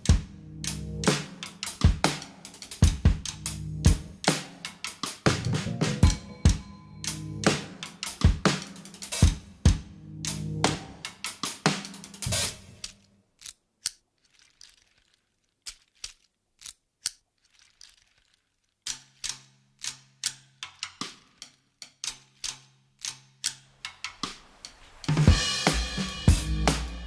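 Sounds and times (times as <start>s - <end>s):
sharp clicks and taps: 0.0s - 6.3s
drum kit music: 0.0s - 12.8s, 24.1s - 27.0s
low steady tone: 6.0s - 7.7s.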